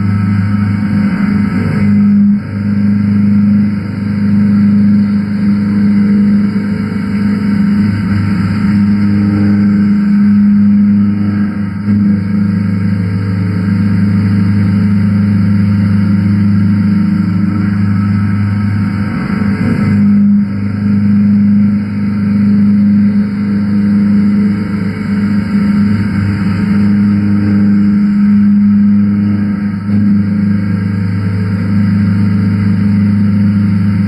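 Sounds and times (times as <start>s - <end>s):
cnc mill cutting hum: 0.0s - 34.0s.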